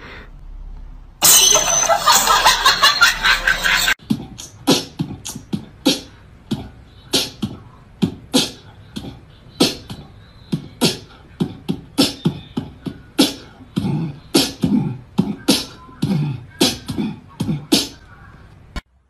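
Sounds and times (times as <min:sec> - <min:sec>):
beatbox-like percussive music: 0:03.4 - 0:18.1.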